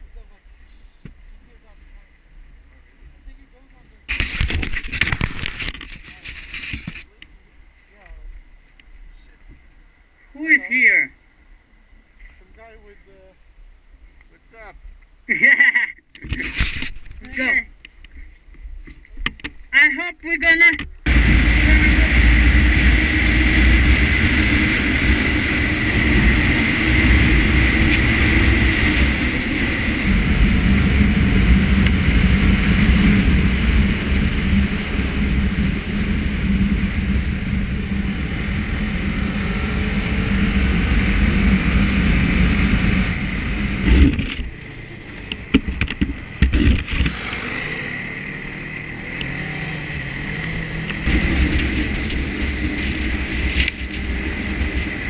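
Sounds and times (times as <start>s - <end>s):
high whine: 20.7s - 55.0s
snowmobile engine running: 21.0s - 55.0s
engine knocks: 45.2s - 47.6s.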